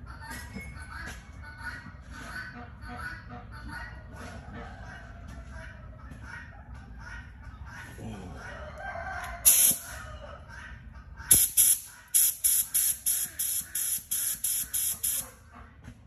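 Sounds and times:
rooster crowing: 8.4s - 10.4s
spray gun hissing: 11.3s - 15.2s.

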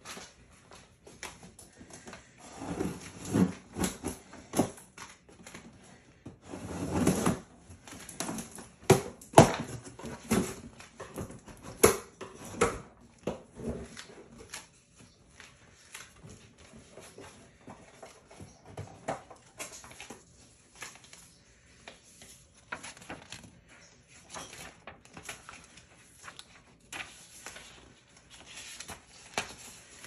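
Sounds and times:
cardboard scrapes and rustles: 2.4s - 4.0s.

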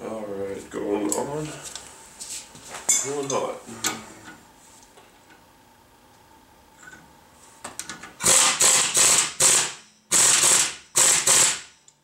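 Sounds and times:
pneumatic impact wrench hammering: 8.2s - 11.8s.

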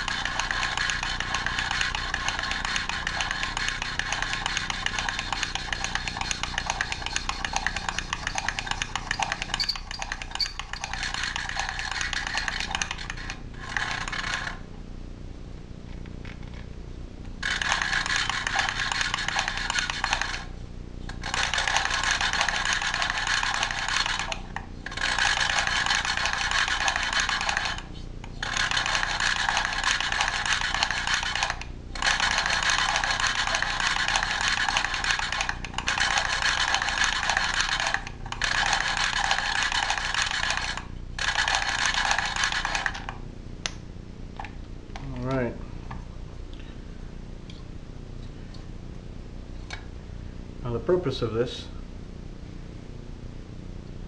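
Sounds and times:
valve lapping tool grinding: 0.0s - 14.6s, 17.4s - 20.5s, 21.1s - 43.1s.

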